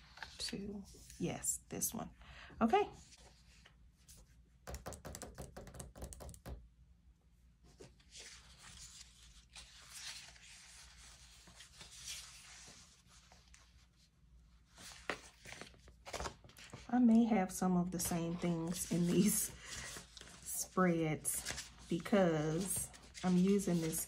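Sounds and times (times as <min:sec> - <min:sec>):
paper sticker sheets rustling: 0:18.0 - 0:24.0.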